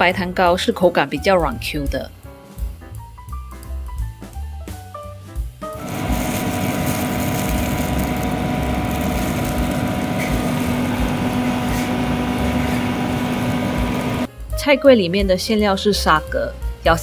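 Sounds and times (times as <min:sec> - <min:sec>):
background music: 0:00.0 - 0:17.0
motor droning: 0:05.8 - 0:14.3.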